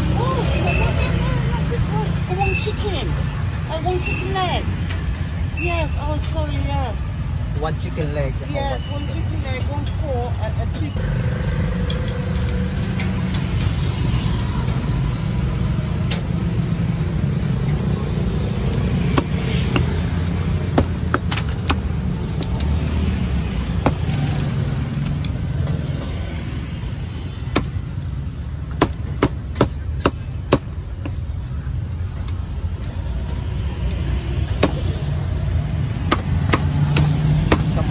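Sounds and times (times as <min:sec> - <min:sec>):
street traffic rumble: 0:00.0 - 0:37.9
cleaver chopping meat: 0:19.0 - 0:20.0, 0:28.8 - 0:30.7, 0:36.0 - 0:37.9.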